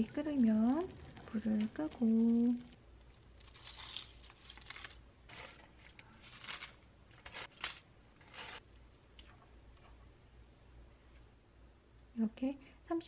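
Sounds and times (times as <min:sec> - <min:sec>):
dry leaves crinkling and rustling: 0:03.4 - 0:05.4.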